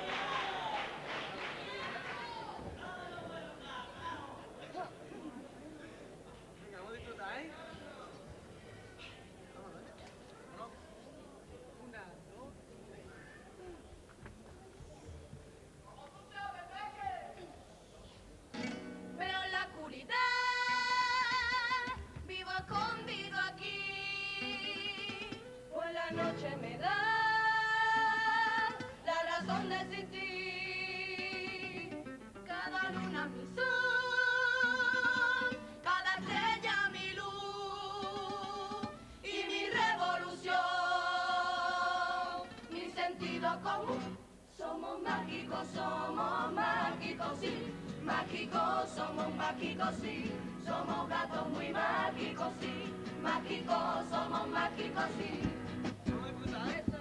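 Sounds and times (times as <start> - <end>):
choir singing long held notes: 32.6 - 55.7.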